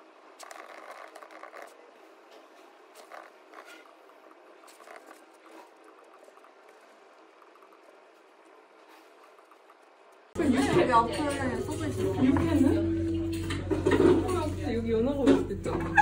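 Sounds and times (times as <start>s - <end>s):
faint room hum: 0.0s - 16.0s
laptop keyboard typing: 0.4s - 1.8s, 4.6s - 8.6s.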